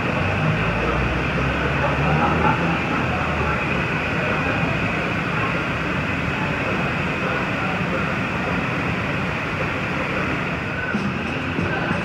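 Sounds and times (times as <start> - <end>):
gas furnace roaring: 0.0 - 12.0.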